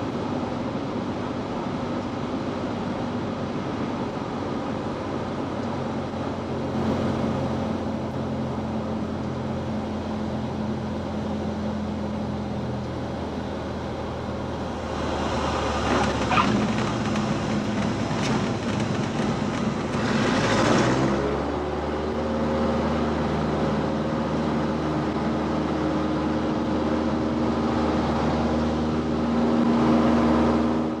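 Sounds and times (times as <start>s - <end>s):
propeller engine in cabin: 0.0s - 31.0s
wheels knocking on touchdown: 15.8s - 21.0s.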